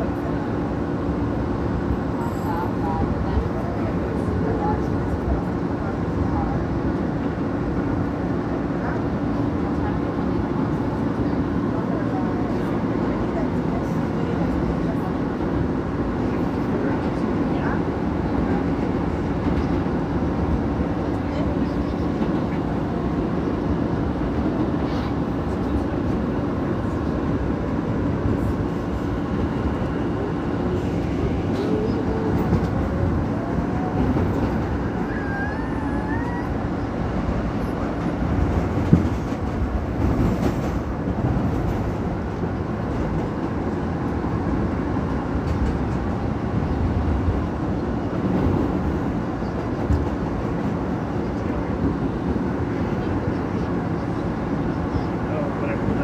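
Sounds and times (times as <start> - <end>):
subway car rumble and rail noise: 0.0 - 56.0.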